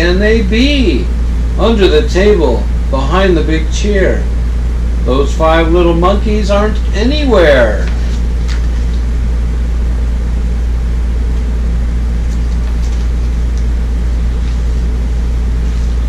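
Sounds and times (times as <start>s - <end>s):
low mechanical hum: 0.0s - 16.0s
book pages rustling: 7.8s - 9.1s, 12.2s - 13.7s, 14.3s - 16.0s.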